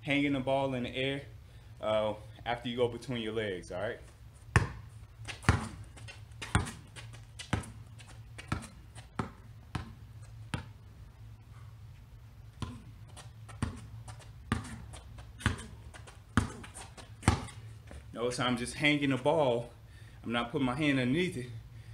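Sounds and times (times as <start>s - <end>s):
basketball bouncing on concrete: 4.5s - 10.8s, 12.5s - 18.1s.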